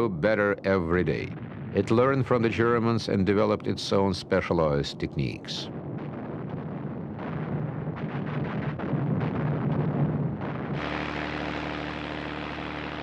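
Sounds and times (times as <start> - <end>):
gunfire and blasts: 5.7 - 11.1
piston aircraft engine drone: 10.8 - 13.0.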